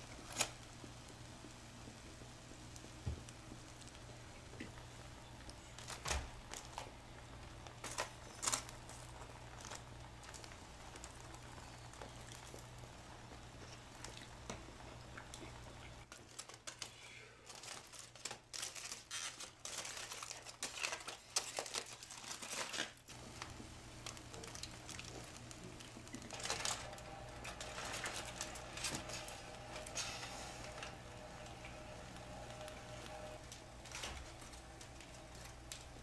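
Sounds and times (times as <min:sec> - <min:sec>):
aluminium foil crinkling: 0:00.0 - 0:36.0.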